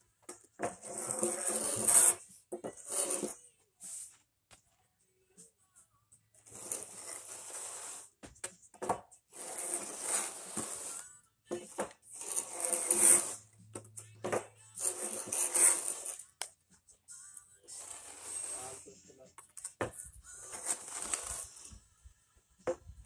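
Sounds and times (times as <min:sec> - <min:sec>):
board scraping across sand: 0:00.8 - 0:02.2, 0:09.4 - 0:11.0, 0:12.2 - 0:13.4, 0:20.4 - 0:21.7.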